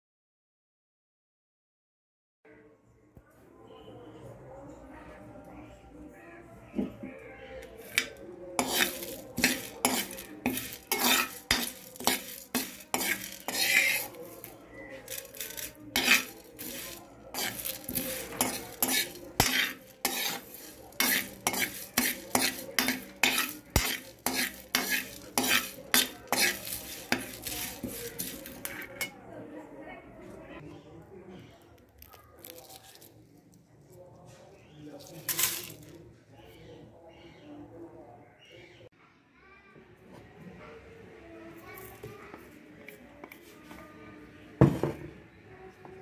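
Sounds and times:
ladle scraping spices in metal pan: 0:07.8 - 0:29.2, 0:35.0 - 0:35.9.

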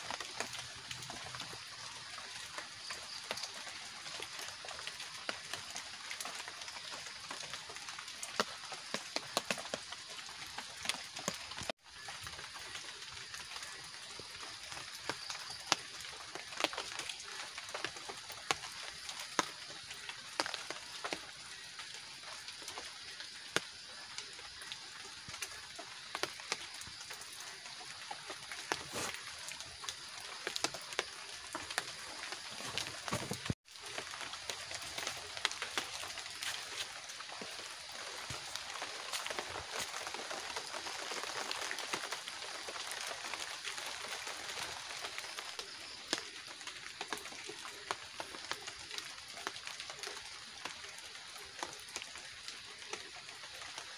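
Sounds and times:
night insects chirring: 0:00.0 - 0:53.9
raindrops tapping on a tarp: 0:00.0 - 0:53.9
steady rain: 0:00.0 - 0:53.9.

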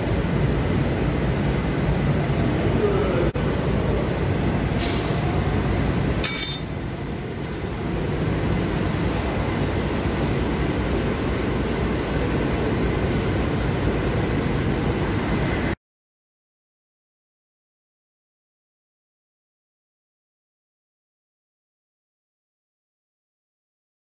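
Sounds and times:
low rumbling noise: 0:00.0 - 0:15.8.

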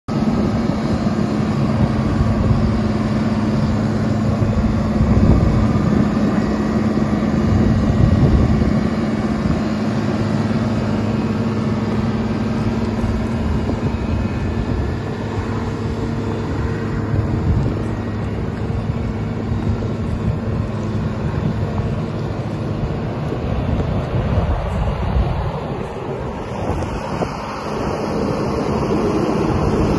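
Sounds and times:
diesel engine running: 0:00.1 - 0:29.9.

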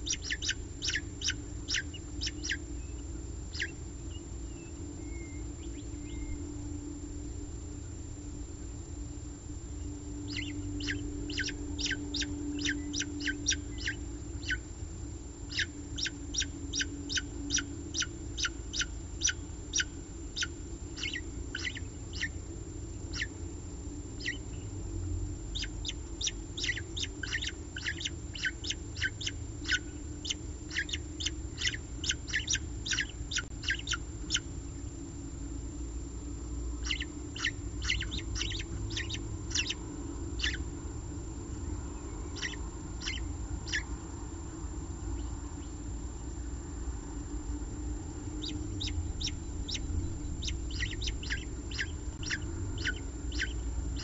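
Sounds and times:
chicks cheeping: 0:00.0 - 0:06.6, 0:09.8 - 0:14.6, 0:15.4 - 0:22.4, 0:23.1 - 0:23.3, 0:24.2 - 0:24.8, 0:25.5 - 0:35.0, 0:36.7 - 0:40.8, 0:41.5 - 0:44.1, 0:48.4 - 0:54.0
steady low hum: 0:00.0 - 0:54.0.

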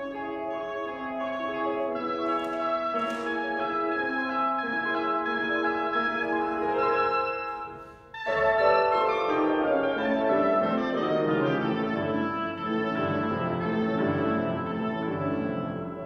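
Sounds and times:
oboe: 0:00.0 - 0:16.0
piano: 0:00.0 - 0:16.0.

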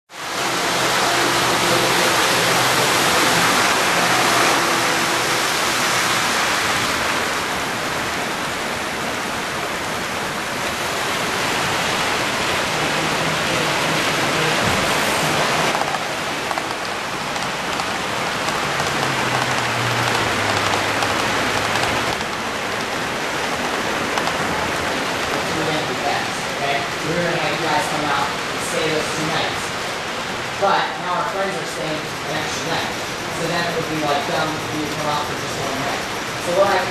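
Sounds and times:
model train wheels on rails: 0:00.1 - 0:08.2, 0:12.5 - 0:26.5, 0:31.2 - 0:36.9.

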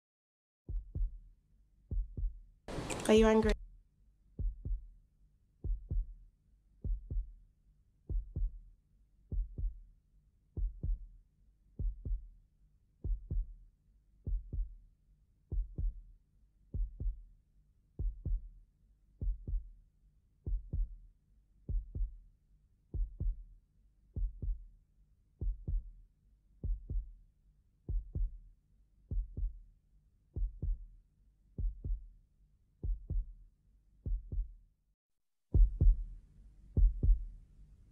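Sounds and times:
heartbeat thuds: 0:00.7 - 0:01.2, 0:01.9 - 0:02.4, 0:04.4 - 0:04.9, 0:05.6 - 0:06.2, 0:06.8 - 0:07.3, 0:08.1 - 0:08.6, 0:09.3 - 0:09.8, 0:10.6 - 0:11.1, 0:11.8 - 0:12.3, 0:13.0 - 0:13.5, 0:14.3 - 0:14.7, 0:15.5 - 0:16.0, 0:16.8 - 0:17.2, 0:18.0 - 0:18.5, 0:19.2 - 0:19.7, 0:20.5 - 0:21.0, 0:21.7 - 0:22.2, 0:23.0 - 0:23.4, 0:24.2 - 0:24.6, 0:25.4 - 0:25.9, 0:26.6 - 0:27.1, 0:27.9 - 0:28.4, 0:29.1 - 0:29.6, 0:30.4 - 0:30.8, 0:31.6 - 0:32.0, 0:32.8 - 0:33.3, 0:34.0 - 0:34.5, 0:35.6 - 0:36.1, 0:36.8 - 0:37.3.

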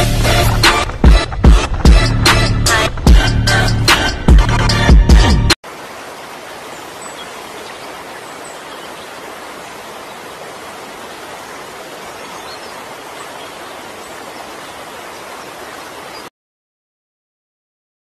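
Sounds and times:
river rushing over rapids: 0:05.6 - 0:16.3.

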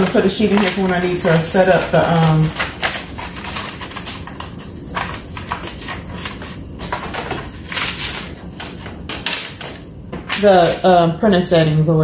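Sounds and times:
paper rustling: 0:00.0 - 0:11.0.

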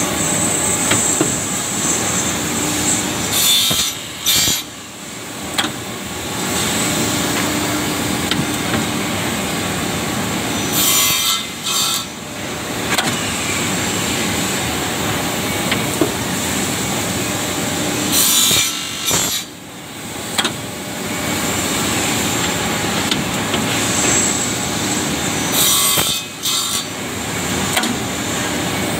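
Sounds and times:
machine sawing wood: 0:00.8 - 0:04.7.

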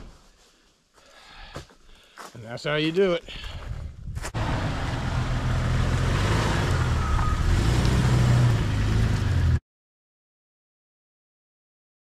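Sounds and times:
engine running: 0:04.4 - 0:09.6.

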